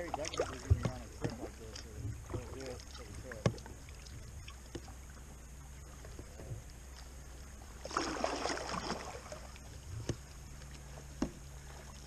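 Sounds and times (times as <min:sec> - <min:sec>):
faint drips and clicks: 0:00.0 - 0:07.1
low background hum: 0:00.0 - 0:12.0
paddle splashing in water: 0:00.0 - 0:12.0.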